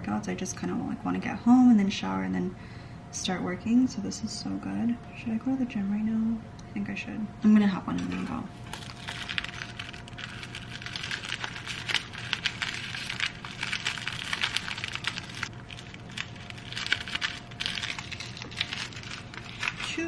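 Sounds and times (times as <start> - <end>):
faint steady hum: 0.0 - 20.0
plastic wrapper crinkling: 8.0 - 20.0.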